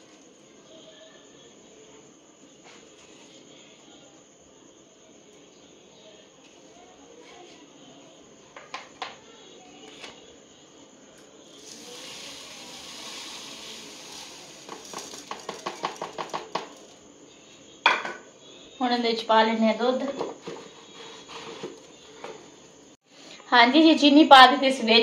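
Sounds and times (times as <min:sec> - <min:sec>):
sugar pouring hiss: 0:11.5 - 0:17.0
spoon clinking on containers: 0:14.6 - 0:16.8.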